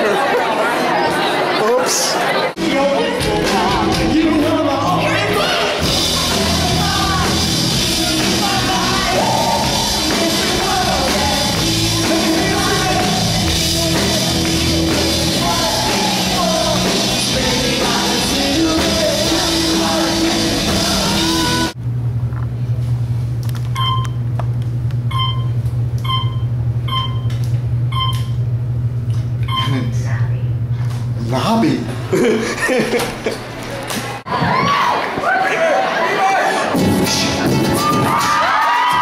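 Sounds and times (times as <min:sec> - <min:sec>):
live rock band with singers: 0:02.6 - 0:21.8.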